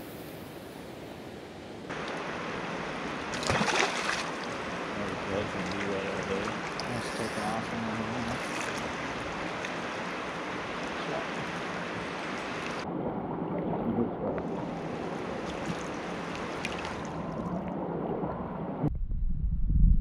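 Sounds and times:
river current rushing: 0:01.9 - 0:12.8, 0:14.5 - 0:17.4
splashing from wading: 0:03.2 - 0:12.8, 0:15.4 - 0:17.3.

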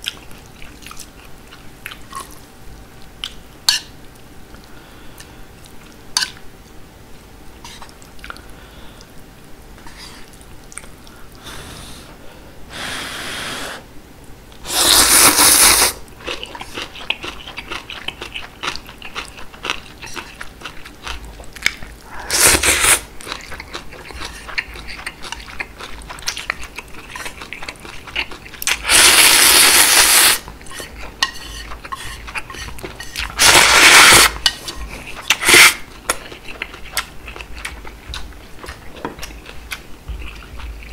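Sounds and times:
loud noodle slurping: 0:14.6 - 0:16.0, 0:22.3 - 0:23.1, 0:28.7 - 0:30.4, 0:33.4 - 0:34.4, 0:35.3 - 0:35.8
wet chewing: 0:16.2 - 0:40.9.

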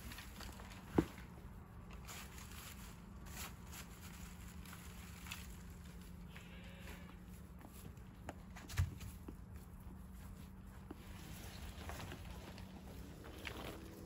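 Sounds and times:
goat crunching hay: 0:00.0 - 0:14.0
faint goat bleat: 0:06.3 - 0:07.2.

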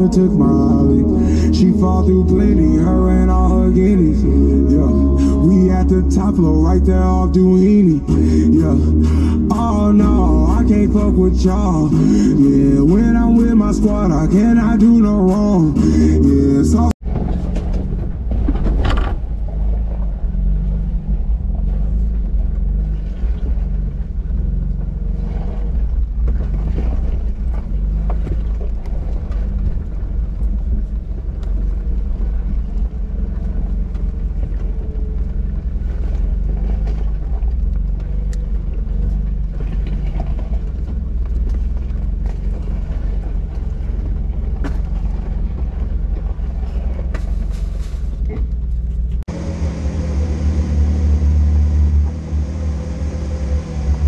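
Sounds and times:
off-road vehicle engine rumble: 0:00.0 - 0:54.0
knocks and rattles over bumps: 0:17.0 - 0:49.3.

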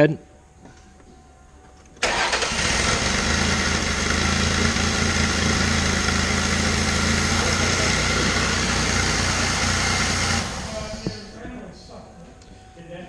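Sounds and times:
car engine starting and idling: 0:02.0 - 0:11.3.

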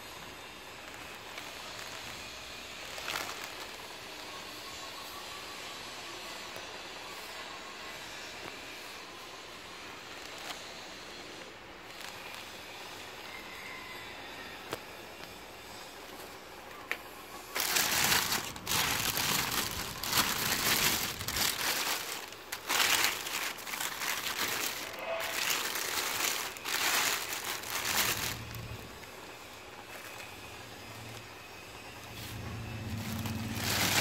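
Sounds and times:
plastic bag crinkling: 0:00.7 - 0:04.3, 0:17.4 - 0:31.2, 0:32.0 - 0:34.0.

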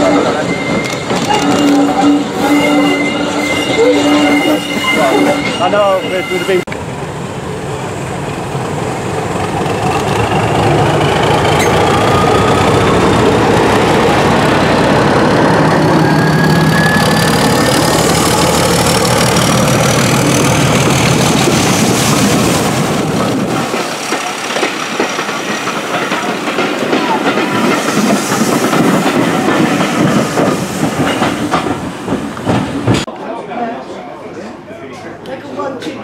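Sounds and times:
diesel locomotive engine: 0:00.0 - 0:33.1
train wheels clicking over rail joints: 0:16.7 - 0:33.1.

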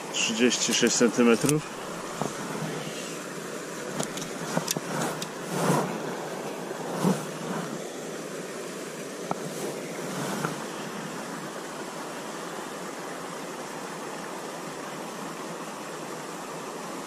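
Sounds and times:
steady rushing background noise: 0:00.2 - 0:08.2, 0:09.2 - 0:11.5.

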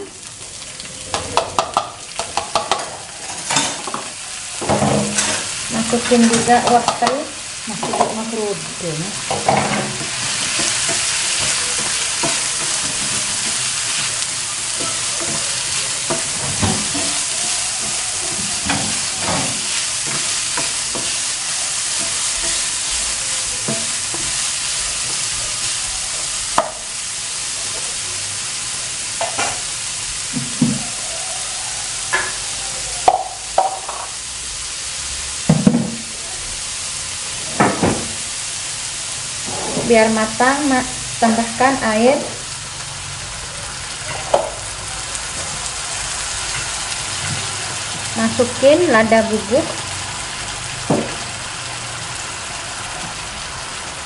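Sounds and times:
vegetables sizzling in oil: 0:00.0 - 0:54.0
spatula scraping and tapping pan: 0:01.1 - 0:08.2, 0:09.3 - 0:21.3, 0:21.9 - 0:25.3.

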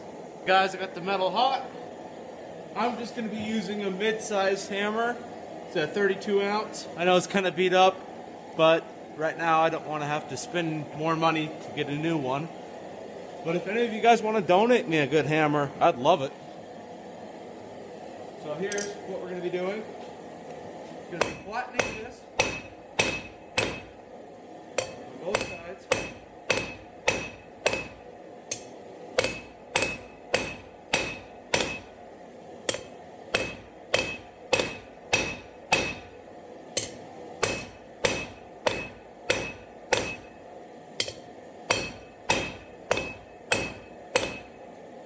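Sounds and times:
hammer striking hot steel on anvil: 0:18.6 - 0:19.0, 0:21.2 - 0:24.0, 0:24.7 - 0:32.0, 0:32.6 - 0:44.7.

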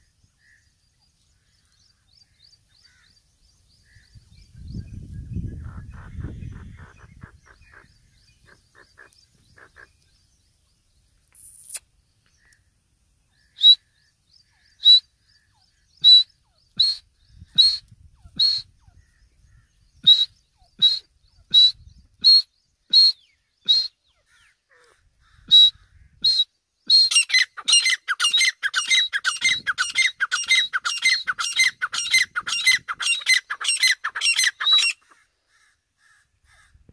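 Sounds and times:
francolin calling: 0:05.3 - 0:10.5, 0:11.3 - 0:35.7.

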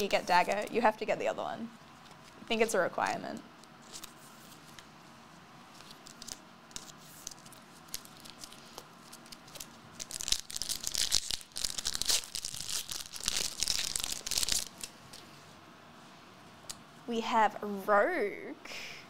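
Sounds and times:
foil wrapper tearing and crinkling: 0:05.8 - 0:15.0.

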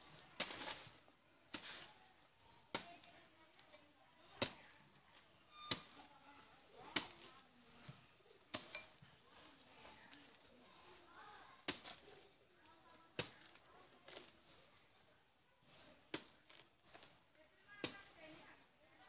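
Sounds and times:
hand tool striking ground: 0:00.4 - 0:00.9, 0:01.5 - 0:04.7, 0:05.6 - 0:06.0, 0:06.7 - 0:09.0, 0:11.6 - 0:12.2, 0:13.1 - 0:14.6.

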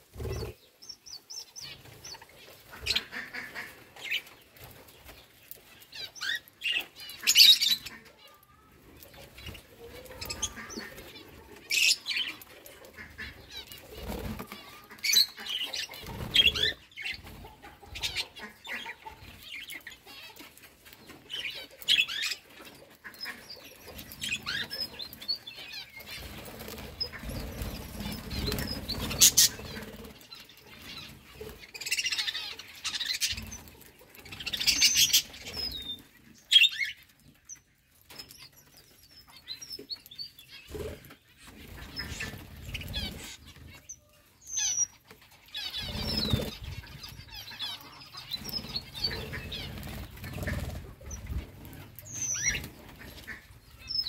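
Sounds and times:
budgerigars chirping: 0:00.2 - 0:04.4, 0:10.2 - 0:12.4, 0:21.3 - 0:30.1, 0:40.4 - 0:54.0
wing flutters: 0:23.3 - 0:35.8, 0:45.6 - 0:47.4, 0:48.3 - 0:53.4.

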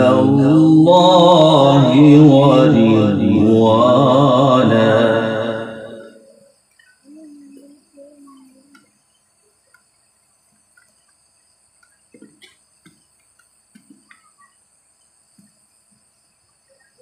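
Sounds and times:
high-pitched hiss: 0:00.0 - 0:17.0.

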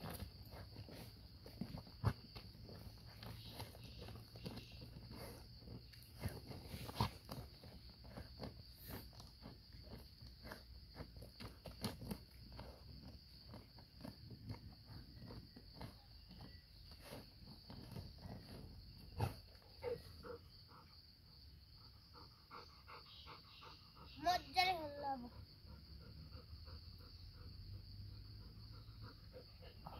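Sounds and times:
dog paws scratching stony soil: 0:00.0 - 0:20.0
insects droning: 0:00.0 - 0:29.9.

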